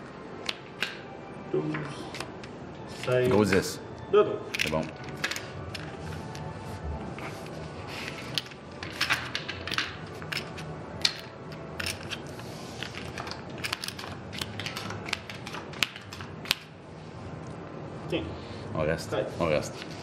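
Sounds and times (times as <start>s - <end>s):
casino chips and cards clicking: 4.5s - 5.9s, 8.3s - 12.2s, 12.8s - 16.7s.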